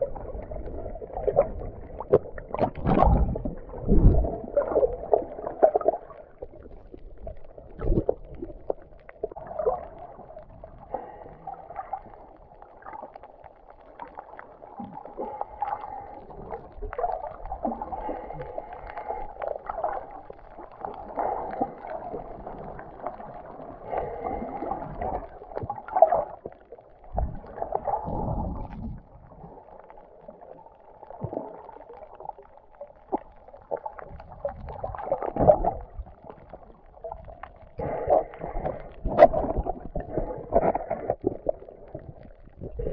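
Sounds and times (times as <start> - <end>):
low underwater bumps: 0.0 - 9.0
underwater murmur and gurgling: 0.0 - 42.9.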